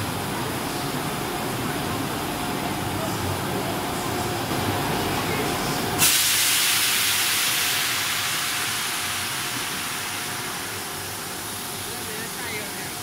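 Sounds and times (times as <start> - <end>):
loud milling hiss: 4.8 - 13.0.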